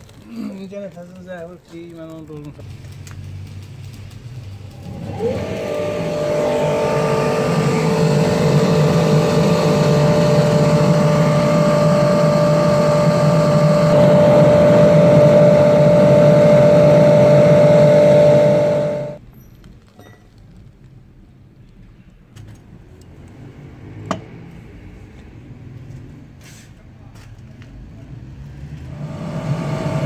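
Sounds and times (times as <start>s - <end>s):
electric air blower whining: 4.6s - 19.2s, 28.9s - 30.0s
rush of forced air: 4.7s - 19.2s, 28.9s - 30.0s.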